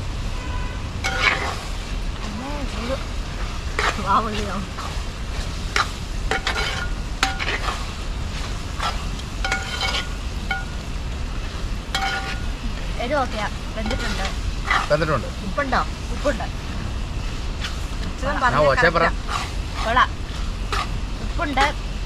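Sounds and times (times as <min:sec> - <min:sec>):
ladle scraping in a pot: 0:01.0 - 0:01.7, 0:04.8 - 0:10.8, 0:11.4 - 0:12.5, 0:13.8 - 0:15.0, 0:19.2 - 0:21.0
ladle clinking against pot: 0:09.4 - 0:10.8, 0:12.0 - 0:12.4.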